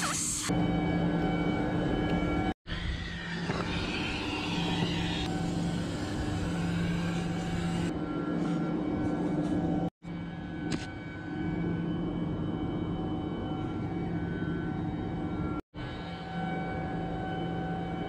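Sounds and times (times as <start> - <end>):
chiller machinery droning: 0.4 - 18.0
hiss: 3.3 - 7.9.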